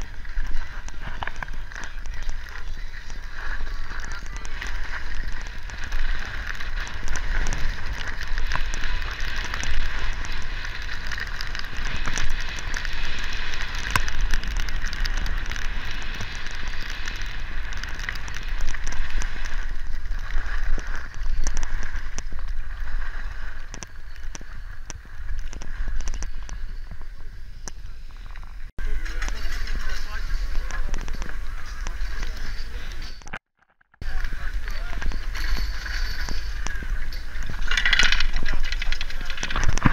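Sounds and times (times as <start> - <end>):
skis scraping over snow: 0.0 - 33.2, 34.0 - 39.9
wind rumbling on microphone: 0.0 - 33.4, 34.0 - 39.9.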